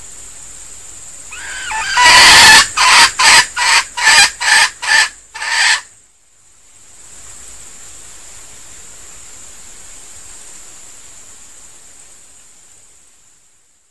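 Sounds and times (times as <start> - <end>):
steady hiss: 0.0 - 13.9
rooster clucking: 1.4 - 5.8.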